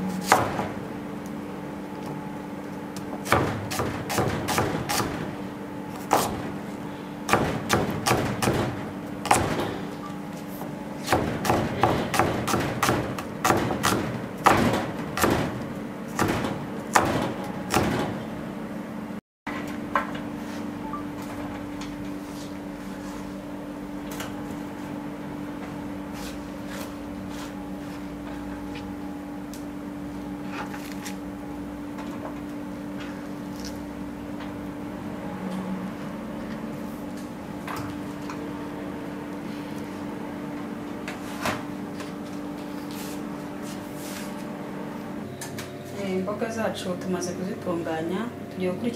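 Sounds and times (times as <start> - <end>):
steady low hum: 0.0 - 48.9
knife chopping on cutting board: 0.2 - 0.7, 3.2 - 5.2, 6.0 - 6.4, 11.0 - 15.6.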